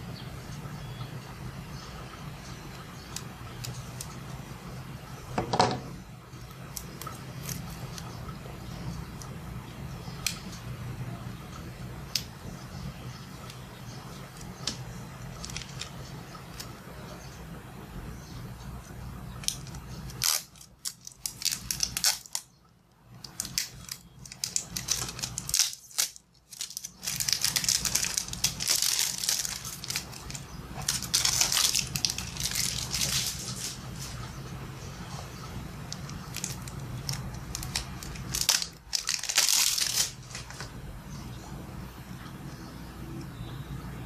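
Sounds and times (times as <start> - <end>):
cellophane wrapper crinkling: 14.3 - 16.8, 19.4 - 22.5, 23.2 - 34.2, 35.8 - 40.8.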